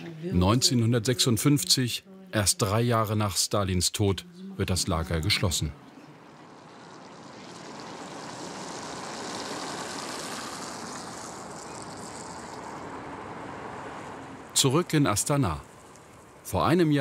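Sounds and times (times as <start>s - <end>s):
cars passing on city street: 3.6s - 17.0s.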